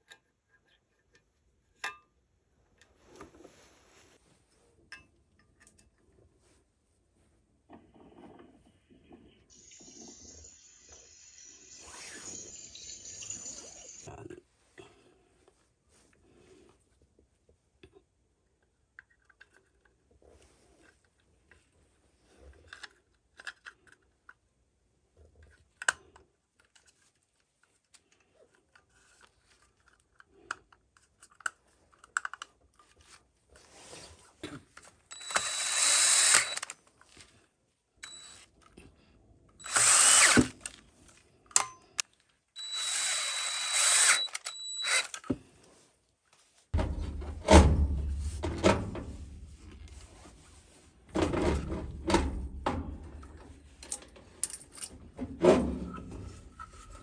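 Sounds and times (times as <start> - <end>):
power drill running: 35.1 - 36.7, 38.0 - 38.4, 39.6 - 40.6, 42.6 - 45.2
loud knocks and handling rumble: 46.8 - 49.6.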